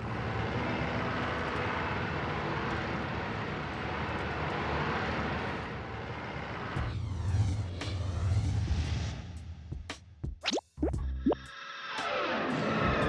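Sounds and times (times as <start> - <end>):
minibus engine and road noise: 0.0 - 10.2.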